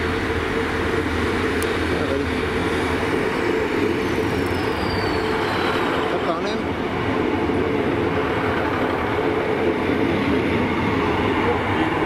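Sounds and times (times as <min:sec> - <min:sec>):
train diesel engines droning: 0:00.0 - 0:12.0.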